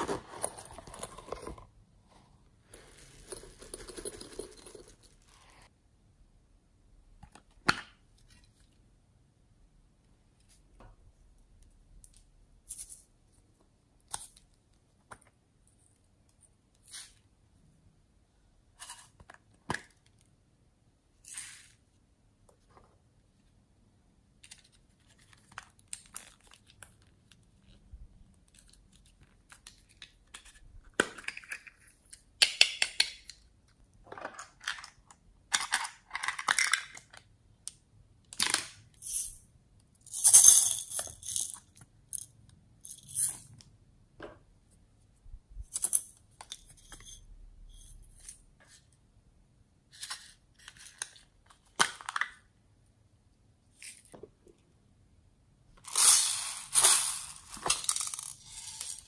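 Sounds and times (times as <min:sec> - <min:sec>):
plastic containers clicking and rattling: 0:34.1 - 0:37.3.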